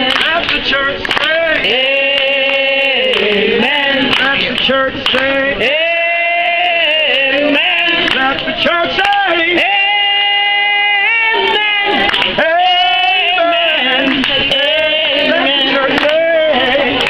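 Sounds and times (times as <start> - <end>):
woman singing gospel: 10.6 - 17.0.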